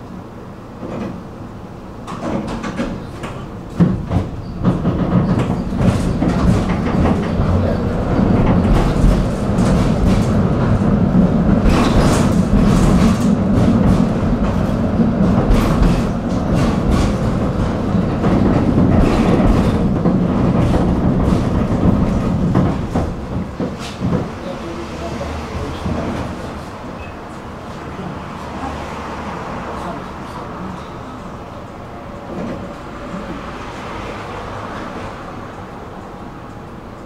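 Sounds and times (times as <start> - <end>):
tram rolling rumble: 0.0 - 37.0.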